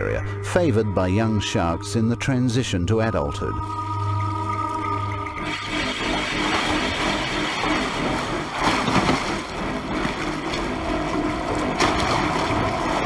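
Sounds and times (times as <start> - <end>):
water splashing: 5.4 - 13.0.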